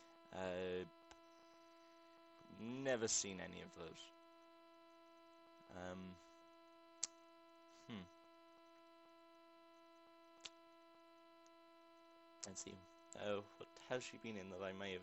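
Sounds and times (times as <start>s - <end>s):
faint electrical hum: 0.0s - 15.0s
person humming: 7.8s - 8.1s.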